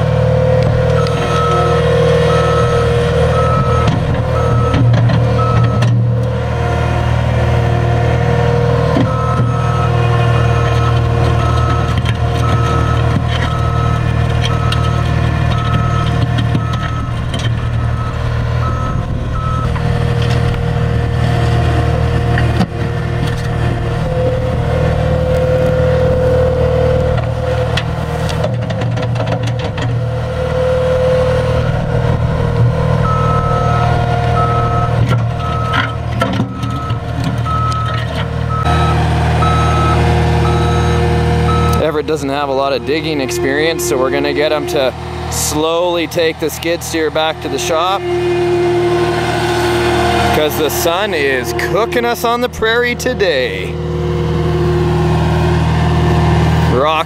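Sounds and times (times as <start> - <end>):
diesel engine running: 0.0 - 57.0
backup alarm beeping: 1.0 - 6.0, 9.0 - 19.8, 33.0 - 41.9.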